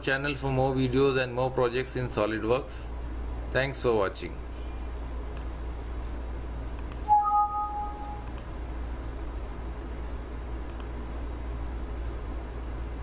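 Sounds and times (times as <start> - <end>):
low electrical hum and hiss: 0.0 - 13.0
faint clicks in pairs: 5.3 - 5.5, 10.0 - 11.0
two-tone electronic chime: 7.1 - 8.2.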